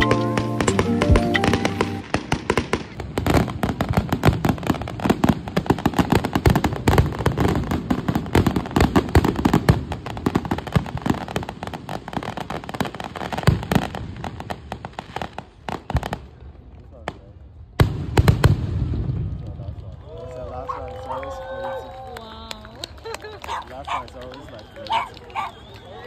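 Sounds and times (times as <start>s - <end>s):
background music: 0.0s - 2.2s
fireworks crackling and banging: 0.0s - 26.0s.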